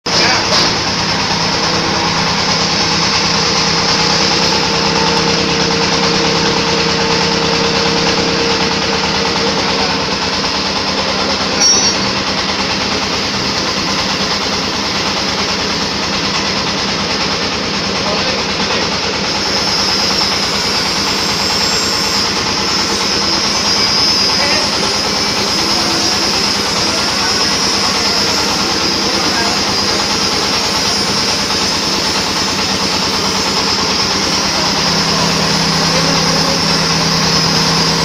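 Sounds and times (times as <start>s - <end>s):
sugar grinding mill running: 0.0s - 38.0s.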